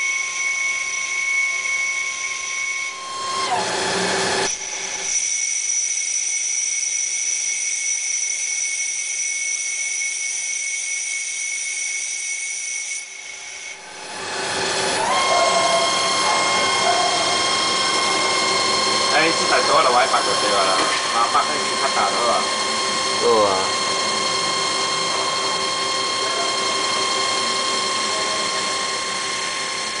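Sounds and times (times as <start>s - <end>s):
lathe cutting with high whine: 0.0s - 30.0s.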